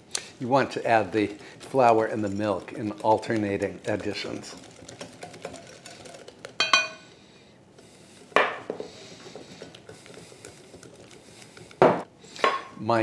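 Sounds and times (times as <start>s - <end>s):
wire whisk stirring batter: 0.5s - 7.1s, 7.8s - 11.9s
metal clinking on glass bowl: 6.6s - 7.1s.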